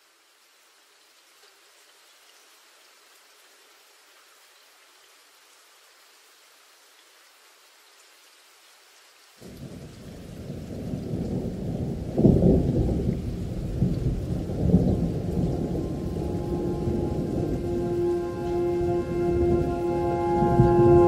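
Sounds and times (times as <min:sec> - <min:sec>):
faint hiss: 0:00.0 - 0:21.0
deep rolling rumble: 0:14.5 - 0:21.0.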